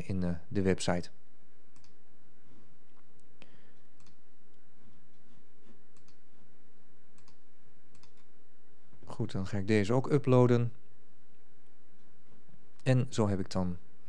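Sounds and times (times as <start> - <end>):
steady low hum: 0.0 - 14.0
computer mouse clicking: 1.7 - 2.0, 4.0 - 4.2, 5.9 - 6.2, 7.2 - 8.3.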